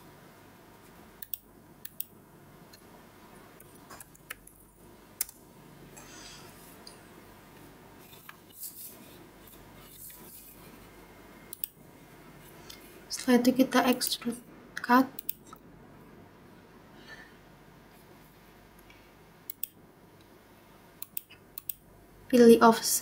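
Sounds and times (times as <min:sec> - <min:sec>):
faint room noise: 0:00.0 - 0:23.0
computer mouse clicks: 0:01.2 - 0:02.1, 0:11.5 - 0:11.8, 0:14.8 - 0:15.6, 0:19.5 - 0:19.8, 0:21.0 - 0:21.8.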